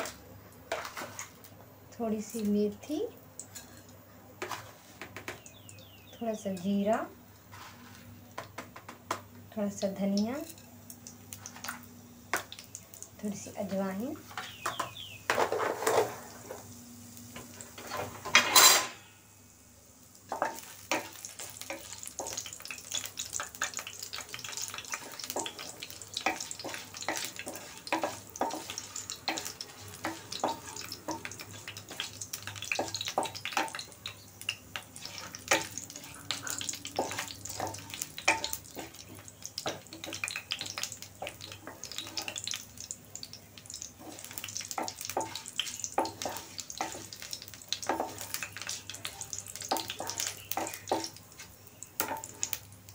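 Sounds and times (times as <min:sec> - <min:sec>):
spices crackling in hot oil: 0:00.0 - 0:52.9
wooden spoon scraping: 0:07.5 - 0:08.1, 0:26.2 - 0:32.1, 0:44.0 - 0:47.2.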